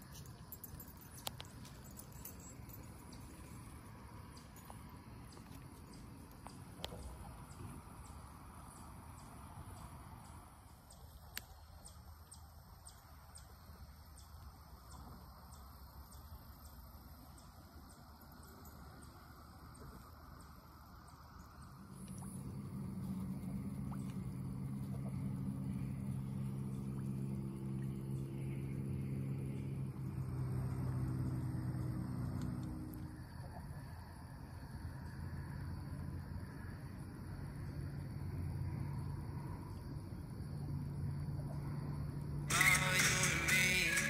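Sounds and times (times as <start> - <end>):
low engine hum: 0.0 - 44.0
faint light ticks: 0.1 - 8.2, 9.2 - 13.1, 32.2 - 33.0.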